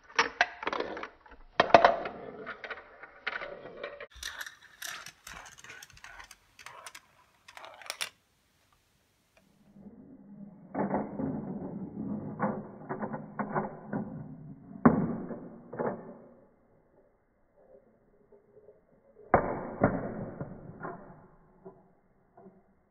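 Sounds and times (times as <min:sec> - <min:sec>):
marbles rolling with low rumble: 0:00.2 - 0:08.2, 0:09.5 - 0:22.9
marbles clacking on track: 0:01.6 - 0:08.2
marbles clicking and rattling: 0:03.4 - 0:08.2.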